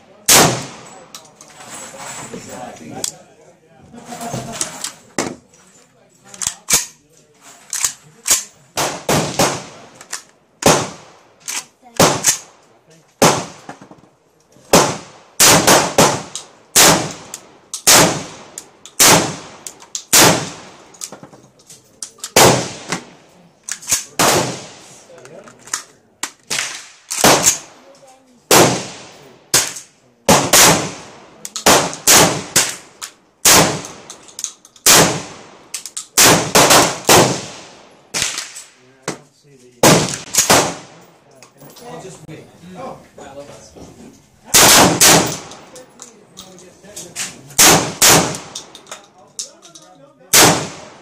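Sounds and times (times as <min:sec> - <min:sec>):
loud shotgun shots with echo: 0:00.2 - 0:00.9, 0:08.8 - 0:10.0, 0:10.6 - 0:11.2, 0:12.0 - 0:12.5, 0:13.2 - 0:13.7, 0:14.7 - 0:20.8, 0:22.4 - 0:23.1, 0:24.2 - 0:25.0, 0:26.5 - 0:27.7, 0:28.5 - 0:34.1, 0:34.8 - 0:35.6, 0:36.2 - 0:38.6, 0:39.8 - 0:41.0, 0:44.5 - 0:45.6, 0:47.6 - 0:48.6, 0:50.3 - 0:51.0.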